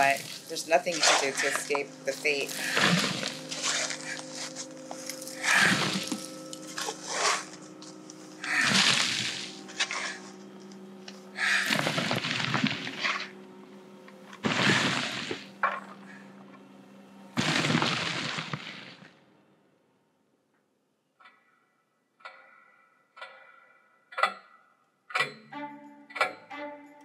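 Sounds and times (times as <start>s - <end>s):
digging tool striking earth and rock: 0.0s - 7.6s, 8.4s - 10.3s, 11.4s - 13.3s, 14.4s - 15.9s, 17.4s - 19.0s
low music drone: 0.0s - 20.0s, 25.1s - 27.0s.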